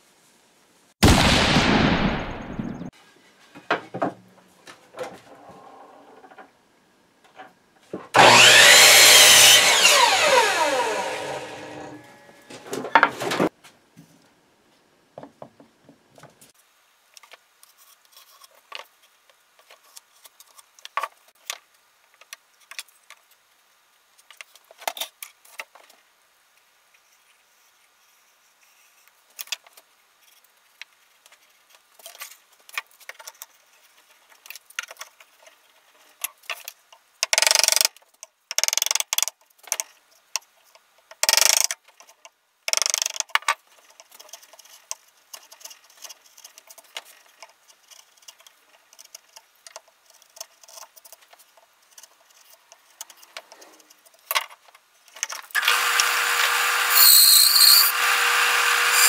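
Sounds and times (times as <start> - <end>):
band saw whining: 8.2 - 12.6, 55.6 - 59.0
board and clamps clicking: 37.2 - 39.9, 41.1 - 41.8, 42.7 - 43.6, 55.2 - 59.0
short bursts of tool noise: 55.6 - 59.0.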